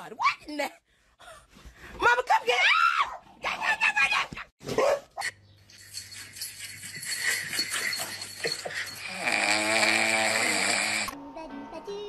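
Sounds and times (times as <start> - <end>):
metal jingling: 5.6 - 9.2.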